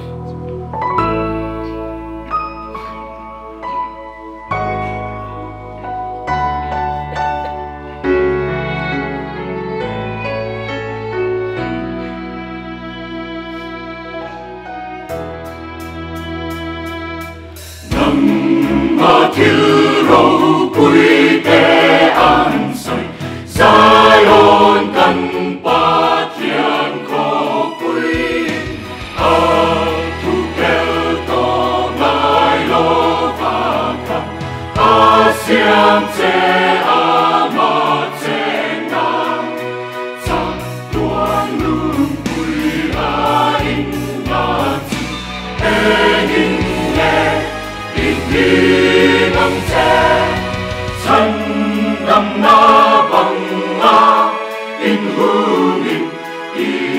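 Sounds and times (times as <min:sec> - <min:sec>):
mixed choir singing a hymn: 0:00.0 - 0:02.1, 0:17.8 - 0:56.9.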